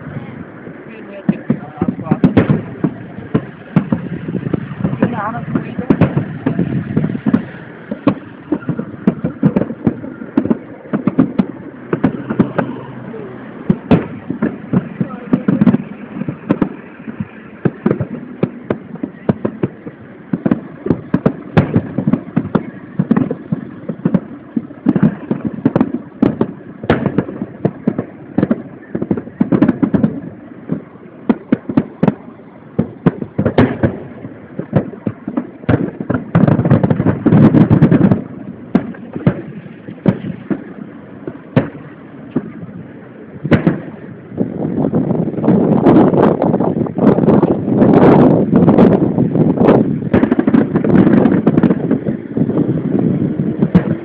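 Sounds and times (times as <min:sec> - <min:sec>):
firework shells bursting: 0:00.0 - 0:54.0.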